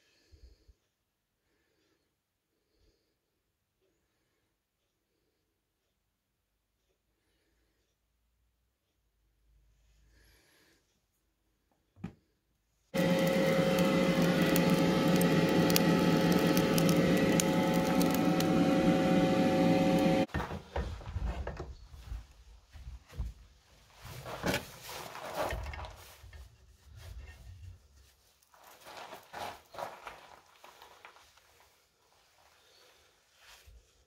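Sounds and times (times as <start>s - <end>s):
forge whirring: 13.0s - 20.5s.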